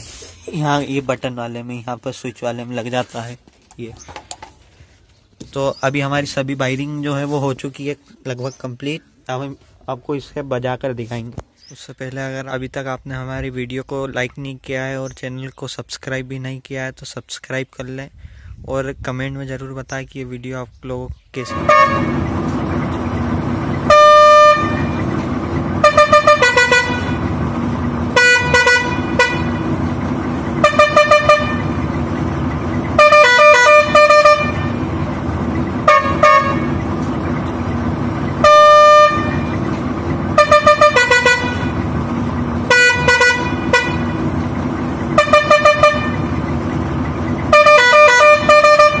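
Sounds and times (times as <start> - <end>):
musical air horn playing tunes: 21.4 - 22.2, 23.8 - 25.1, 25.8 - 27.4, 28.1 - 29.8, 30.6 - 31.8, 32.9 - 35.0, 35.8 - 36.8, 38.4 - 39.6, 40.3 - 41.8, 42.6 - 44.3, 45.2 - 46.4, 47.5 - 49.0.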